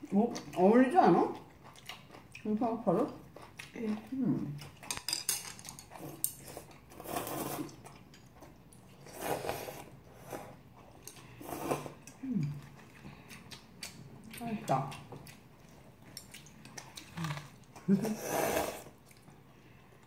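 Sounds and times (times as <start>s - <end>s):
chewing: 0.0s - 9.1s, 10.4s - 18.0s, 18.8s - 20.0s
chopsticks clicking on bowls: 4.8s - 6.4s
noodles slurped: 6.0s - 7.8s, 9.0s - 10.6s, 16.4s - 19.0s.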